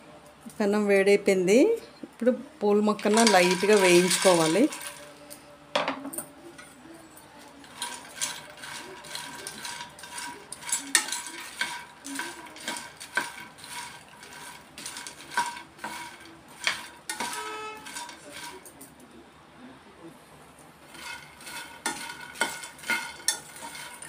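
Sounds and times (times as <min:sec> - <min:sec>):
spoon scraping pan: 0:02.9 - 0:05.3, 0:07.6 - 0:18.8, 0:20.8 - 0:24.0.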